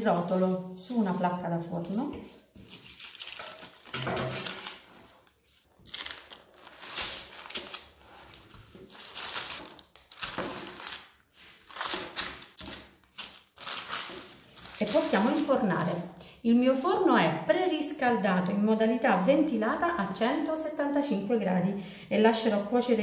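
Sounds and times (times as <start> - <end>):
parchment paper rustling: 0.0 - 16.1.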